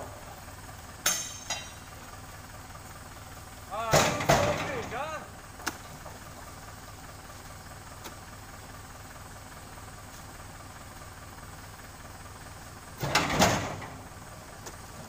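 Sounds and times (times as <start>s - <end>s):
low background hum: 0.0s - 15.0s
fruit bunch thudding on truck bed: 3.8s - 4.8s.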